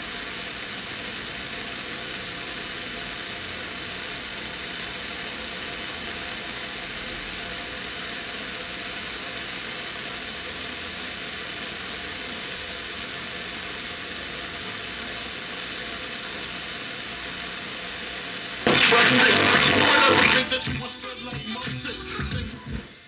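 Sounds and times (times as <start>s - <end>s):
radio static hiss: 0.0s - 23.0s.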